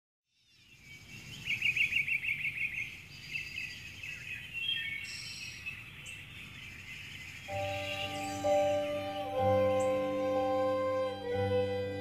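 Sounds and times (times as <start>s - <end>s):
birds chirping: 0.4s - 12.0s
fast bird trill: 7.5s - 11.3s.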